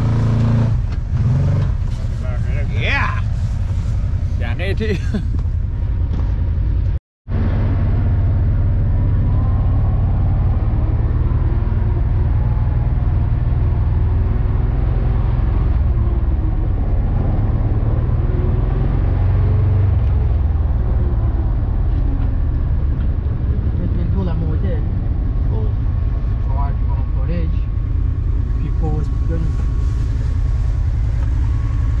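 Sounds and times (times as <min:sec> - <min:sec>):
atv engine droning: 0:07.3 - 0:32.0.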